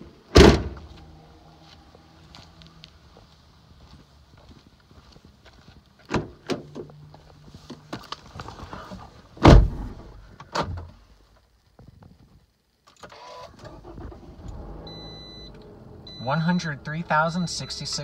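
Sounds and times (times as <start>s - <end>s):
car door shutting: 0.3s - 0.9s, 9.4s - 10.9s
car engine starting and idling: 13.0s - 18.0s.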